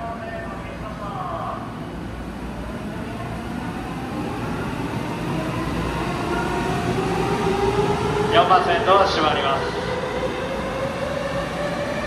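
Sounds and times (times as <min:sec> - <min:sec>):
electric trains rumbling: 0:00.0 - 0:12.0.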